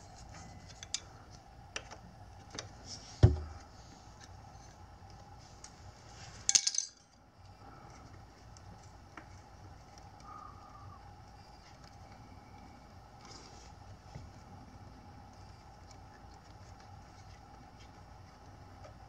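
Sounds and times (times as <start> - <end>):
metal parts rattling: 6.5 - 7.0.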